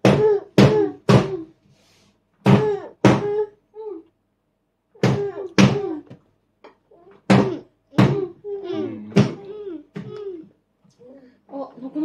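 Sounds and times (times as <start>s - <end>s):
young child babbling: 7.4s - 10.5s.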